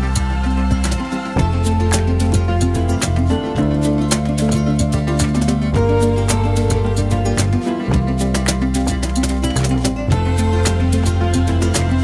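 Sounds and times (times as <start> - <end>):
instrumental background music: 0.0 - 12.0
steady percussive beat: 0.1 - 12.0.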